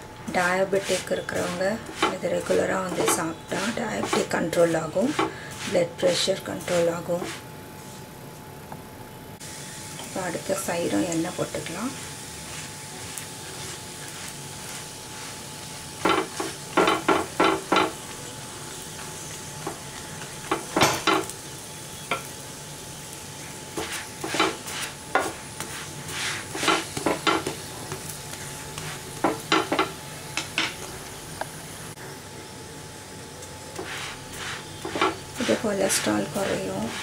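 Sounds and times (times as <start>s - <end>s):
flatbread sizzling in oil: 0.0s - 37.0s
utensil scraping pan: 0.4s - 7.4s, 23.8s - 28.1s, 33.8s - 37.0s.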